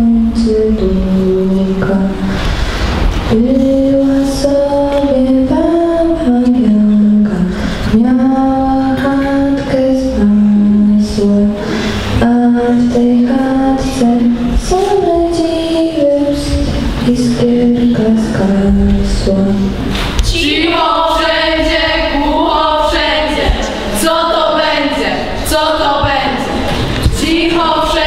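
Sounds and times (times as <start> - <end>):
woman singing slow melody: 0.0 - 2.3, 3.3 - 11.6
singer breathing: 2.2 - 3.1, 7.5 - 7.9, 11.6 - 12.2.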